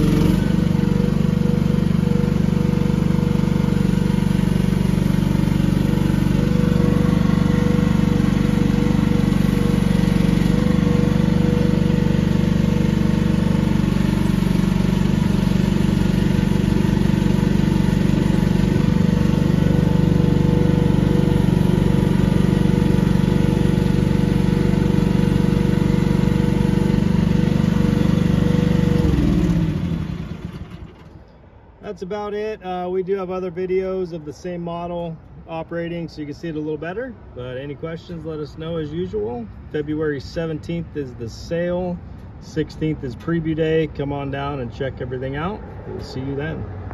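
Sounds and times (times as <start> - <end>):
hydraulic whine: 0.0 - 31.5
excavator engine running: 0.0 - 32.1.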